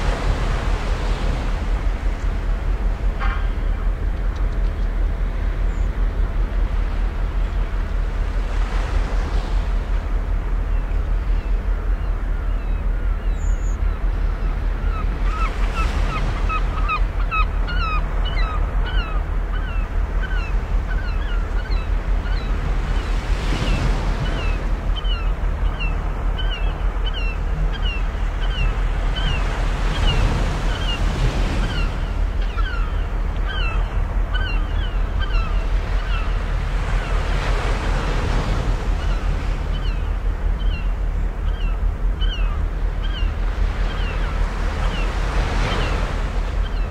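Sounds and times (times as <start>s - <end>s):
waves washing onto shore: 0.0s - 10.6s
birds chirping: 10.6s - 46.9s.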